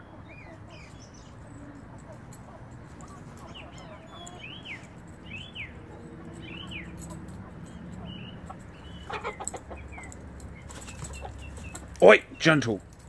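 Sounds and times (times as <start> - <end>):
hens clucking: 0.0 - 5.0, 5.7 - 12.0.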